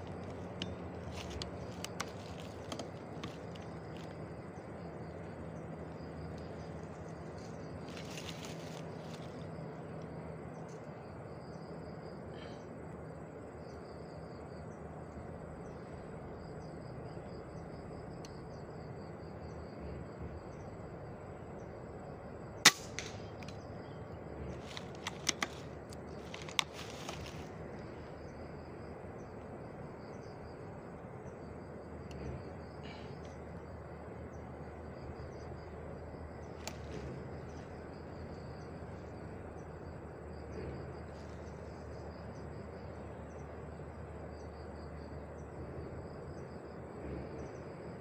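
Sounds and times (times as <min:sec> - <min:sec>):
insects chirping: 0:00.0 - 0:48.0
air rifle shot: 0:22.6 - 0:23.2.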